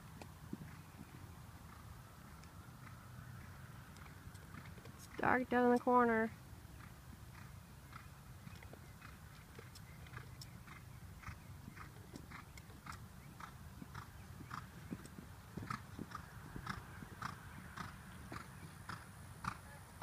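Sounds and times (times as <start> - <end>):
horse hoofbeats on sand: 0.0 - 1.9, 6.8 - 20.0.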